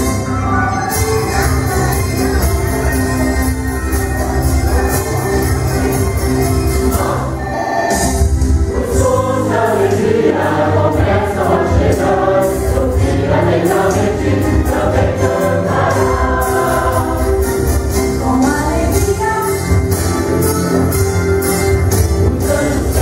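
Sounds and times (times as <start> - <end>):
mixed choir singing: 0.0 - 20.0, 22.2 - 23.0
instrumental accompaniment with beat: 0.0 - 23.0.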